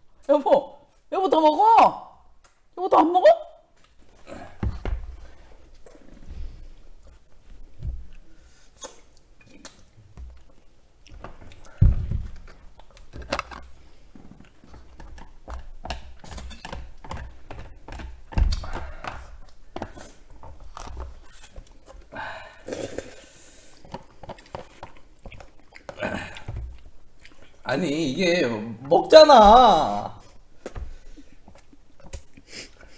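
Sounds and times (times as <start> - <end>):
chewing: 8.1 - 11.8, 12.4 - 27.7, 30.2 - 32.9
dull thumps: 11.2 - 12.6.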